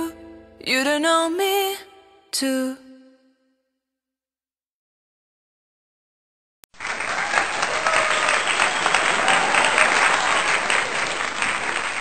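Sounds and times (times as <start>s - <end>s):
crowd applauding: 6.7s - 12.0s.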